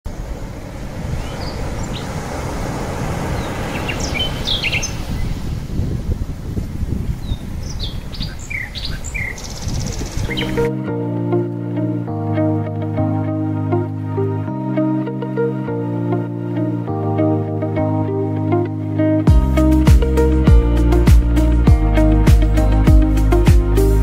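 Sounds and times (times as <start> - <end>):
ocean surf rushing: 0.1 - 8.1, 9.0 - 24.0
small birds chirping: 1.0 - 2.2, 3.2 - 5.6, 7.0 - 10.7.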